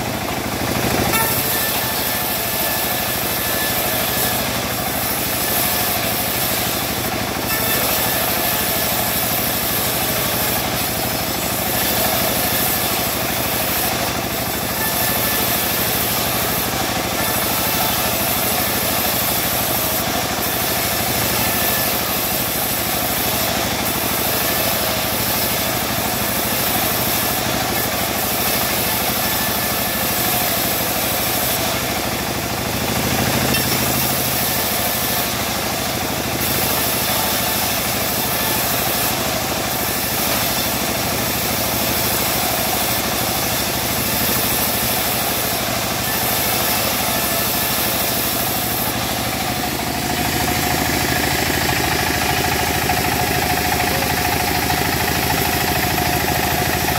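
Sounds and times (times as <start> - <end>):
bandsaw mill engine droning: 0.0 - 56.9
band blade slicing wood: 1.0 - 2.8.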